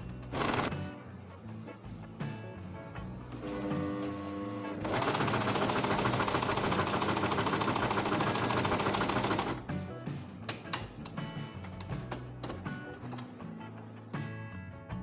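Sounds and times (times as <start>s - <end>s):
background music with held notes: 0.0s - 15.0s
sewing machine stitching: 4.8s - 9.6s.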